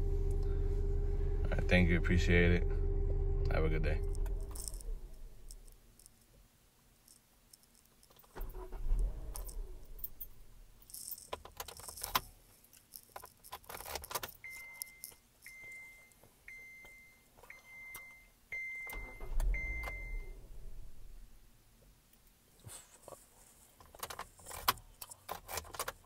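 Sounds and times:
car keys jangling: 0:04.1 - 0:06.3, 0:07.1 - 0:15.9, 0:23.8 - 0:26.0
dashboard warning chime beeping: 0:14.4 - 0:20.5.

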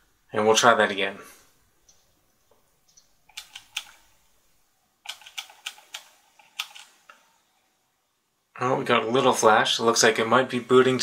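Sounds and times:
keyboard keys tapped rapidly: 0:05.1 - 0:06.8.

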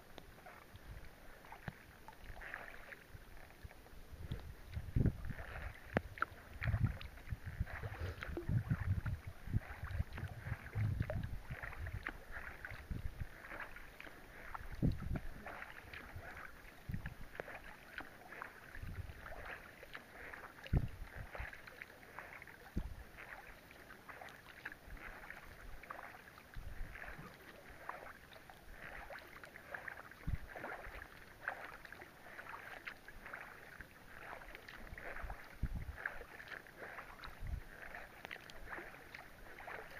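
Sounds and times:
rain pattering on plastic and water: 0:06.0 - 0:06.8
low muffled thumps: 0:10.2 - 0:11.3.

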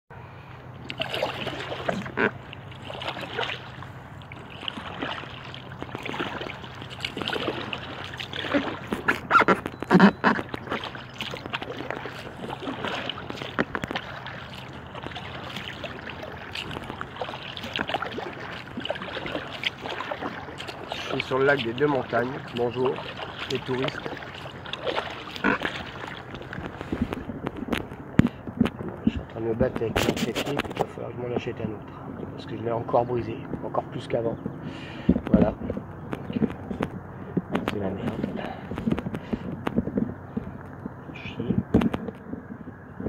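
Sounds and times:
paddle strokes splashing water: 0:00.8 - 0:32.3.

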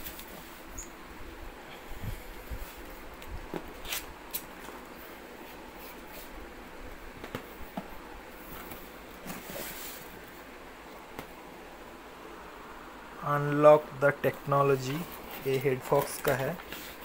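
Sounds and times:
cardboard rustling and scraping: 0:07.2 - 0:10.2.

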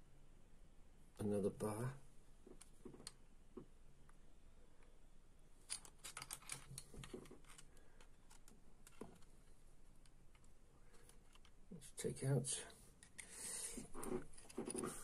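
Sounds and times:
clicks of small metal parts: 0:05.7 - 0:09.3.

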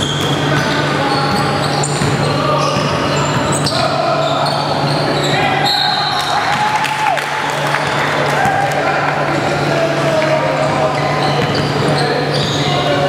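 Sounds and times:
basketball bouncing: 0:00.0 - 0:03.9, 0:11.4 - 0:12.6
sneakers squeaking: 0:00.0 - 0:08.7, 0:09.4 - 0:13.0
players' voices: 0:00.0 - 0:13.0.

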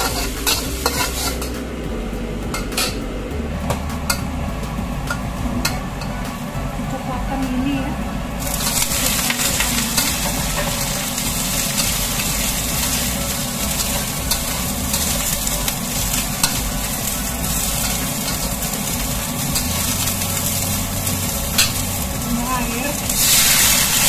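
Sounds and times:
metal spatula scraping a wok: 0:00.0 - 0:01.7, 0:08.4 - 0:24.0
vegetables sizzling in hot oil: 0:00.0 - 0:24.0.

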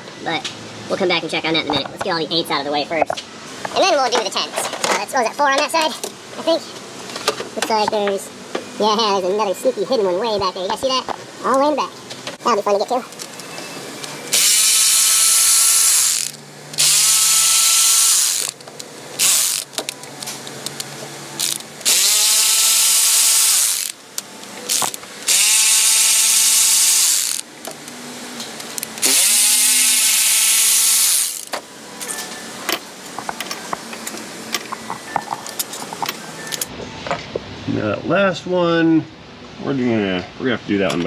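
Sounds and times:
power tool motor whine: 0:14.3 - 0:18.6, 0:19.2 - 0:19.8, 0:21.4 - 0:24.0, 0:24.7 - 0:27.5, 0:29.0 - 0:31.5.

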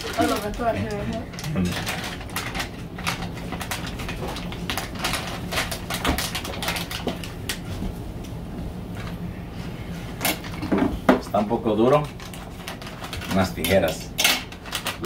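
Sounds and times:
plastic wrapper crinkling: 0:00.0 - 0:07.6, 0:12.0 - 0:13.9, 0:14.5 - 0:15.0
steady low hum: 0:00.0 - 0:15.0.

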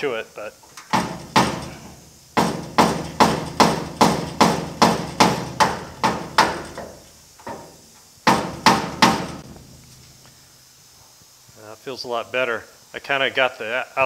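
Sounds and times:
hammer blows on sheet steel: 0:00.9 - 0:09.9.

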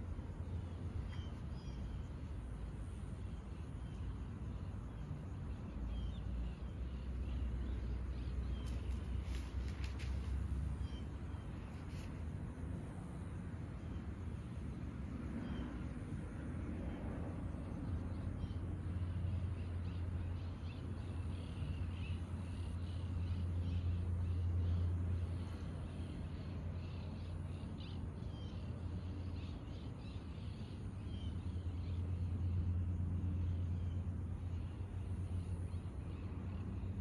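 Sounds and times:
birds chirping: 0:00.0 - 0:12.3
low steady hum: 0:00.0 - 0:37.0.

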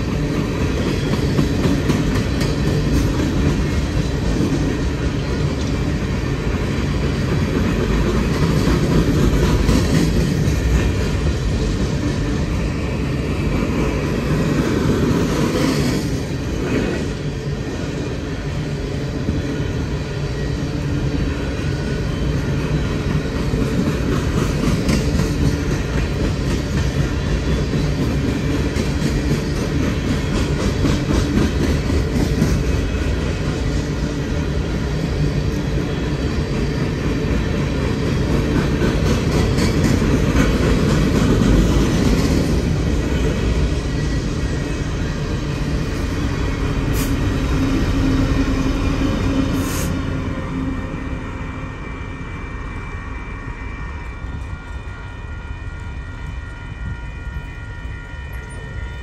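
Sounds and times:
freight cars rumbling on rails: 0:00.0 - 0:59.0.

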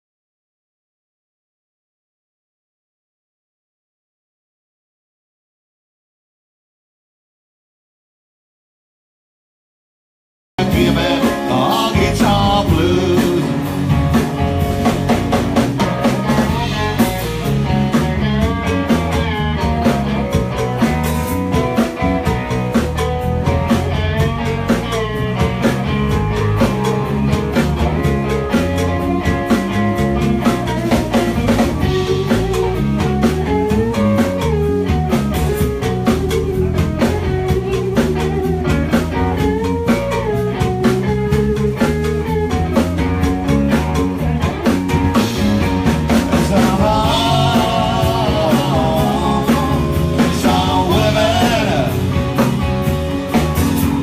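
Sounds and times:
rock band playing: 0:10.6 - 0:54.0.

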